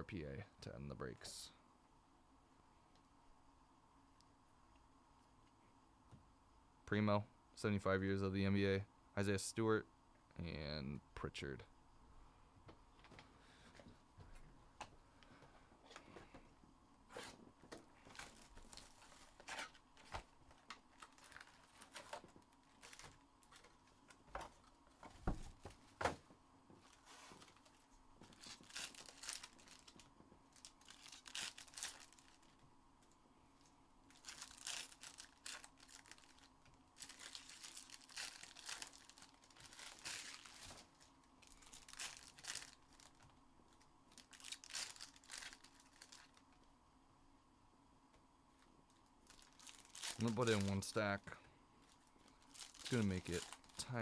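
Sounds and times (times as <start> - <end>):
foil wrappers tearing and crinkling: 18.0 - 23.9, 26.9 - 32.6, 34.1 - 43.3, 44.1 - 46.5, 49.2 - 50.9, 51.9 - 53.9.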